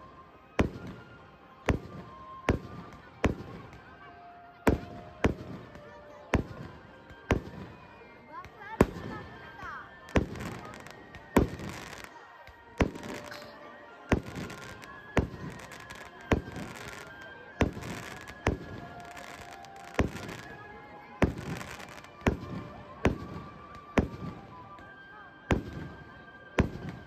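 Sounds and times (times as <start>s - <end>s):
fireworks crackling after bursts: 0.0s - 4.0s, 4.6s - 27.0s
fireworks bangs: 8.8s - 20.6s, 21.2s - 24.5s.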